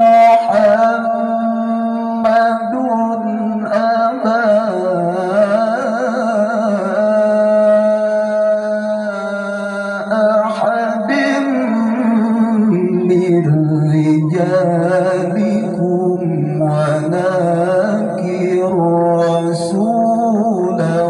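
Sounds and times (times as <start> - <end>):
man reciting melodically through loudspeakers: 0.0 - 21.0.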